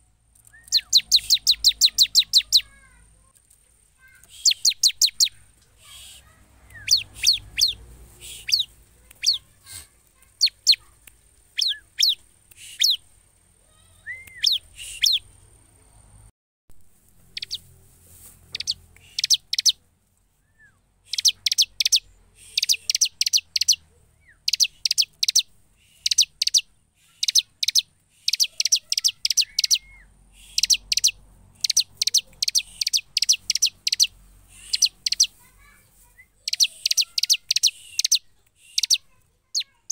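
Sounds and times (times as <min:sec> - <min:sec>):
bird chirping: 0:00.0 - 0:16.3, 0:17.2 - 0:39.9.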